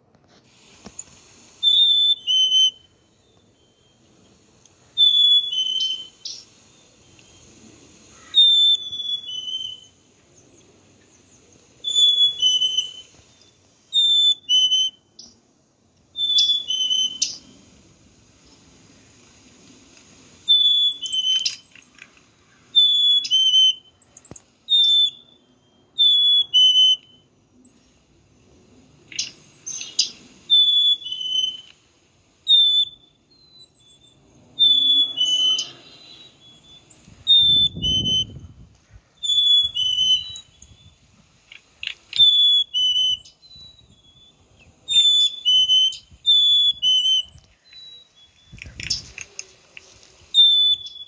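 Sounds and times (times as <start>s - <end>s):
chickadee whistling song: 1.5s - 4.3s, 5.0s - 7.5s, 8.2s - 10.0s, 11.8s - 15.4s, 16.1s - 17.6s, 20.4s - 21.8s, 22.7s - 27.8s, 29.1s - 41.2s, 41.8s - 49.2s, 50.3s - 51.0s.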